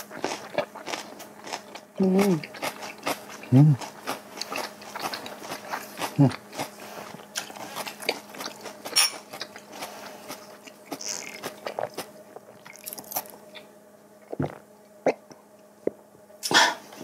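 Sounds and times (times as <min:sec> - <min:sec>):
chewing: 0:00.0 - 0:15.3
swallowing gulps: 0:14.2 - 0:15.4.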